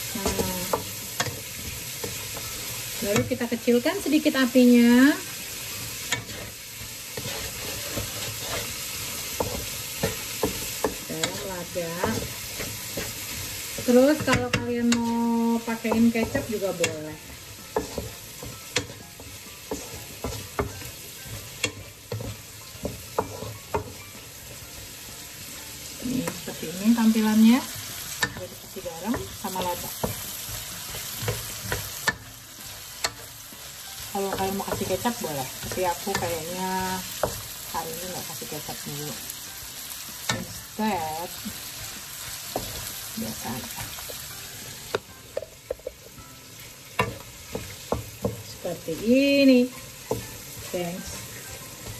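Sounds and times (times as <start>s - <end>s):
carrots sizzling in a wok: 0.0s - 51.9s
wooden spatula scraping a wok: 4.8s - 24.8s.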